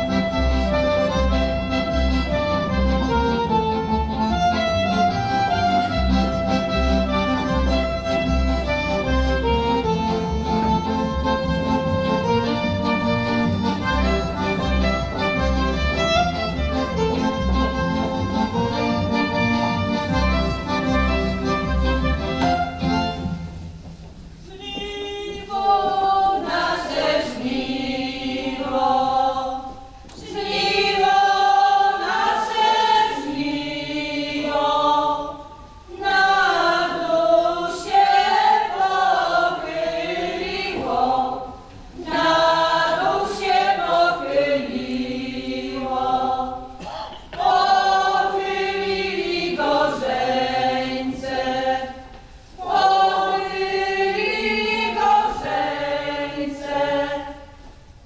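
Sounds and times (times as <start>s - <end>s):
folk singers singing unaccompanied: 24.4s - 58.0s.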